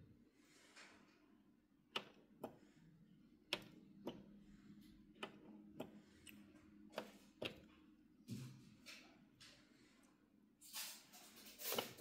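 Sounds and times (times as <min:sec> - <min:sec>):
plastic buttons clicking: 0:01.9 - 0:02.6, 0:03.5 - 0:04.4, 0:05.2 - 0:07.7.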